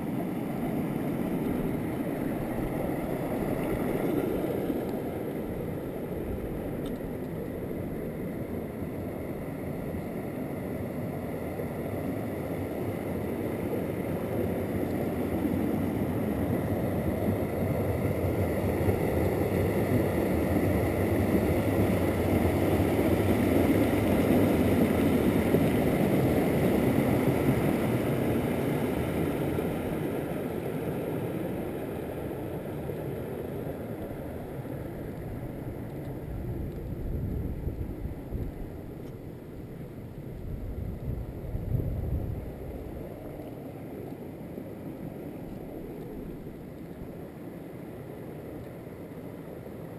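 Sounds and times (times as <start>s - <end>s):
stream water over rocks: 0.0s - 10.8s.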